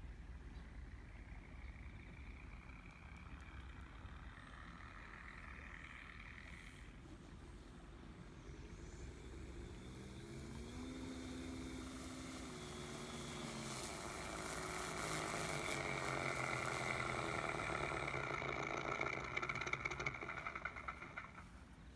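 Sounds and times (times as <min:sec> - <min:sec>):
electric motor and propeller whir: 0:00.0 - 0:21.9
simulated piston engine idle: 0:00.2 - 0:21.9
rapid rhythmic chugging: 0:14.6 - 0:21.5.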